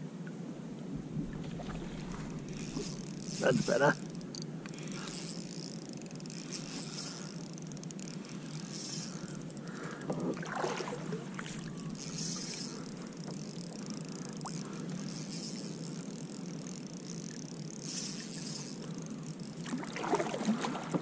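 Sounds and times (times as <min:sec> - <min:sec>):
water rushing around kayak hull: 0:09.2 - 0:15.7, 0:19.6 - 0:21.0.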